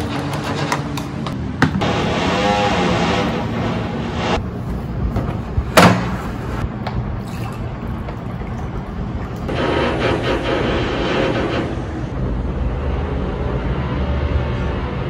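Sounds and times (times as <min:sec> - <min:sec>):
construction noise: 0:00.0 - 0:15.0
water pouring into a glass: 0:07.2 - 0:09.5.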